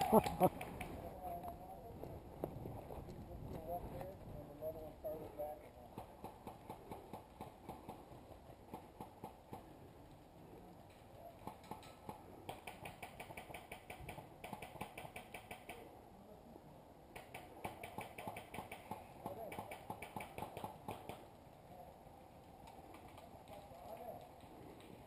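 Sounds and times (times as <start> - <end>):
faint airsoft guns firing: 11.4 - 15.9, 17.1 - 21.3.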